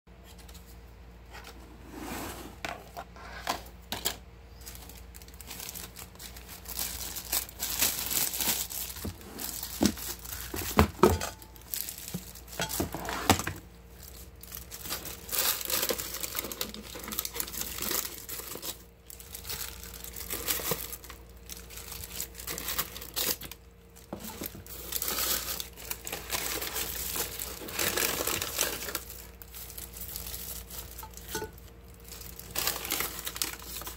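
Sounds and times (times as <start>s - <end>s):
paper and plastic glove crinkling: 3.0s - 33.9s.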